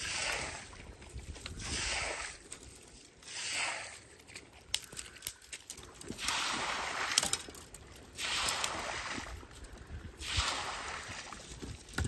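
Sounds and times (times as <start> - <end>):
broom sweeping wet mud: 0.0 - 0.8, 1.5 - 4.2, 6.1 - 7.3, 8.1 - 9.4, 10.2 - 11.6.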